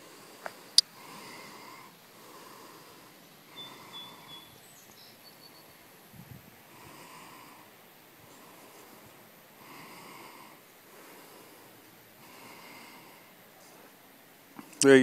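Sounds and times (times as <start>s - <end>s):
soft breathing close to microphone: 0.0s - 4.8s, 6.4s - 14.8s
faint outdoor ambience: 0.0s - 15.0s
high bird chirps: 3.5s - 5.9s.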